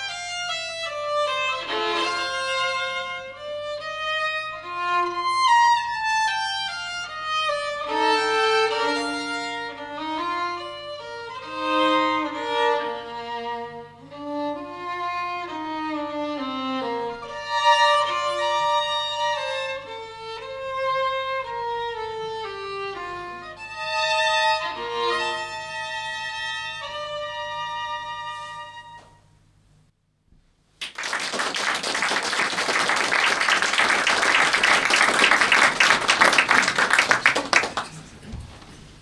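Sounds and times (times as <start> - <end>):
violin-led chamber music: 0.0 - 29.2
audience applause: 30.8 - 38.3.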